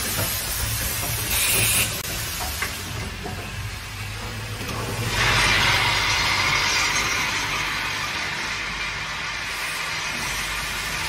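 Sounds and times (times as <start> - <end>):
bright hiss: 0.0 - 3.0.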